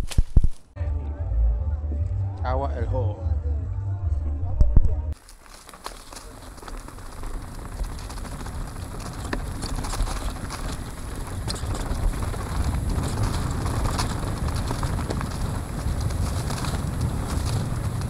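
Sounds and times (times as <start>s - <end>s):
bike tyres crunching on dirt: 0.0s - 0.8s, 5.2s - 18.0s
low wind rumble: 2.0s - 18.0s
bike rattling and clicking: 5.2s - 18.0s.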